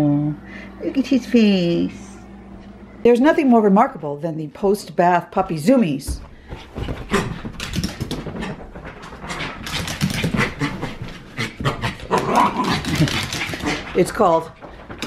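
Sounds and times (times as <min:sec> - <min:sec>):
dog claws clicking on wood floor: 0:07.4 - 0:10.8, 0:12.6 - 0:15.0.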